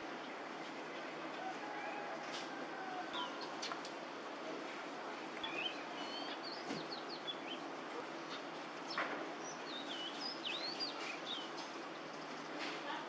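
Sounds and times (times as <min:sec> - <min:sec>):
sparrows chirping: 0:05.4 - 0:13.0.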